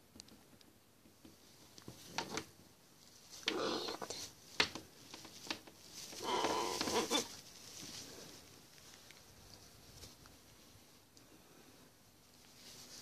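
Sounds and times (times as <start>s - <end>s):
parrot muttering raspily: 3.4s - 4.2s, 6.2s - 7.3s.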